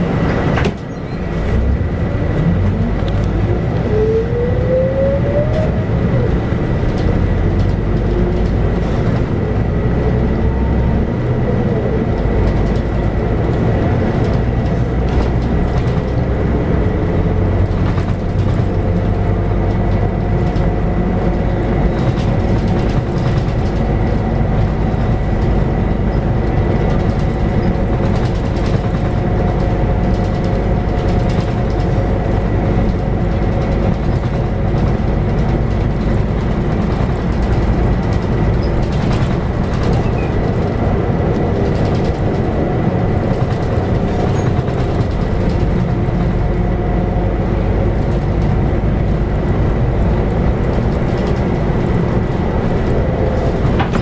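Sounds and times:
bus diesel engine running: 0.0s - 54.0s
deep road rumble: 0.0s - 54.0s
small rattles and clicks: 12.4s - 16.2s, 26.6s - 42.6s, 43.2s - 46.4s.

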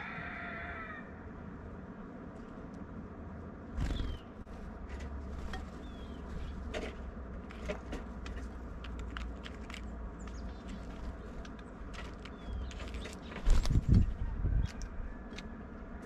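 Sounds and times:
faint high bird chirps: 3.8s - 4.4s, 5.8s - 6.6s
birds clicking and tapping: 3.8s - 16.0s.

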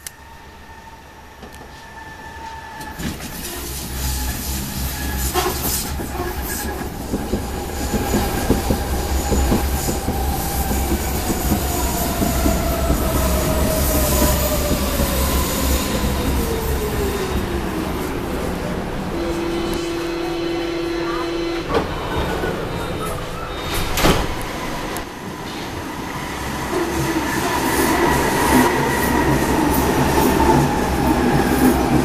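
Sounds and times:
train wheels clattering on rails: 2.8s - 16.9s.

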